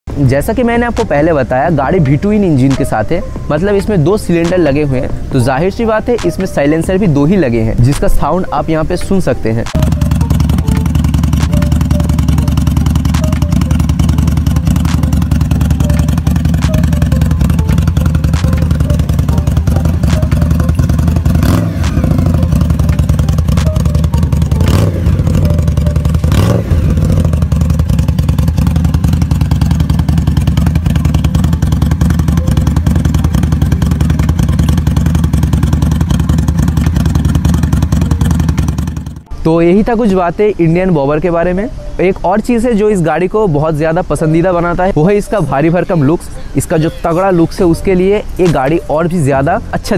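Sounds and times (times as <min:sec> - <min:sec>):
motorcycle engine idling: 0:09.7 - 0:39.6.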